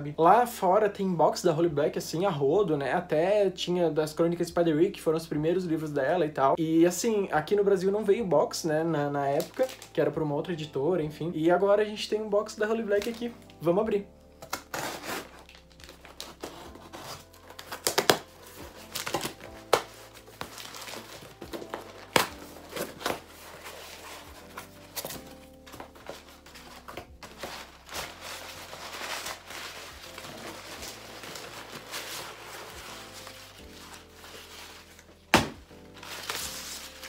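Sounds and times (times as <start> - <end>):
soft background music: 0.0 - 37.0
packing paper crinkling: 9.3 - 10.0, 12.9 - 13.6, 14.4 - 37.0
tape and cardboard tearing: 14.4 - 37.0.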